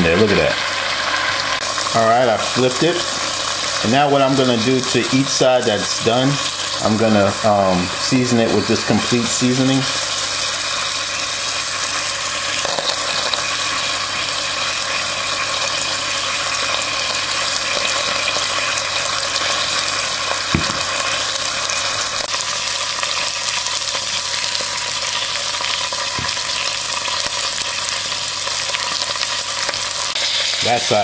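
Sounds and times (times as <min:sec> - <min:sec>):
beef sizzling in butter: 0:00.0 - 0:31.0.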